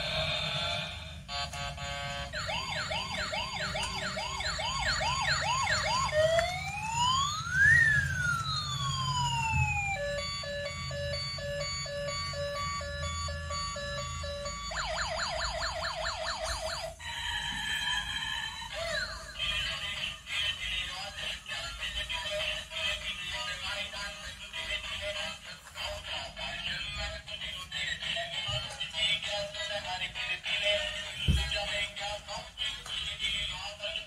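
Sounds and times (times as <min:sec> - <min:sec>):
toy electronic siren: 0:01.3 - 0:19.8.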